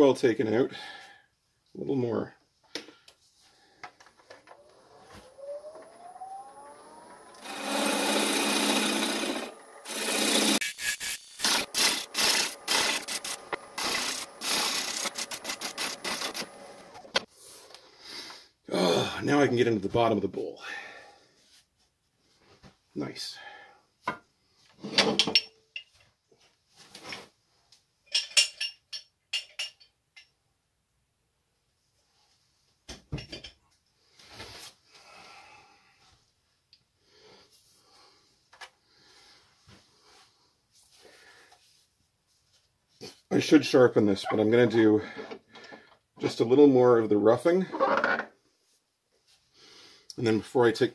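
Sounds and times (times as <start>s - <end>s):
gouge cutting spinning wood: 4.5s - 17.3s
rustling and shuffling: 21.3s - 23.0s, 25.9s - 27.9s, 33.8s - 35.0s, 39.3s - 43.3s
metal tools clinking: 28.1s - 30.3s.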